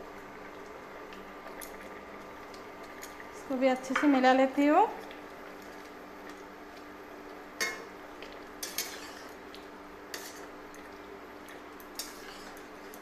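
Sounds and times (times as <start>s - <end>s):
metal spatula scraping a pot: 8.6s - 9.4s, 10.1s - 10.5s, 12.0s - 12.7s.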